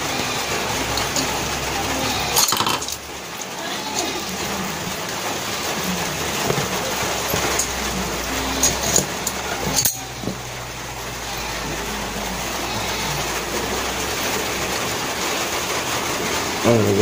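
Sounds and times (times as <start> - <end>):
metal engine parts clicking: 0.8 - 13.9.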